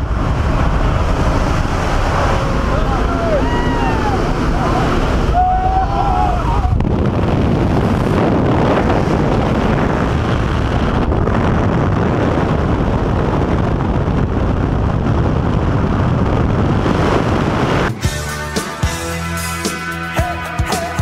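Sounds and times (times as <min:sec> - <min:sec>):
aircraft engine: 0:00.0 - 0:05.4, 0:06.2 - 0:18.0
wind rushing through open door: 0:00.0 - 0:18.0
wind buffeting microphone: 0:00.0 - 0:19.0.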